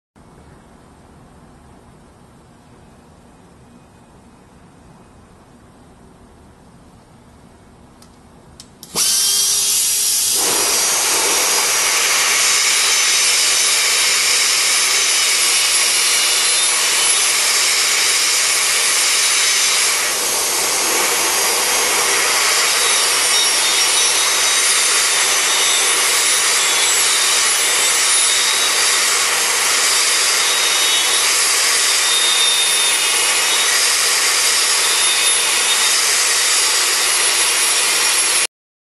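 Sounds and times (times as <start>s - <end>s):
burr grinding metal: 8.8s - 38.4s
air die grinder whining: 8.8s - 38.5s.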